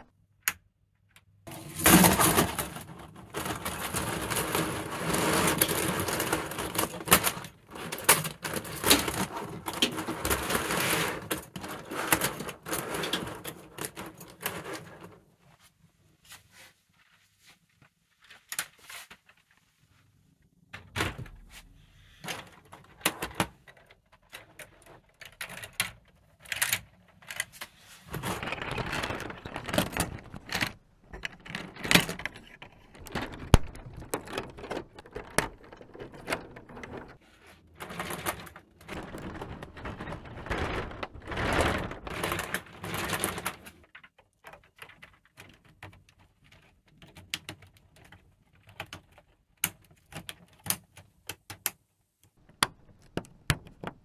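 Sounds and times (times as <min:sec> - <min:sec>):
plastic track links clattering: 0:01.5 - 0:15.1, 0:22.3 - 0:37.2, 0:37.8 - 0:49.4.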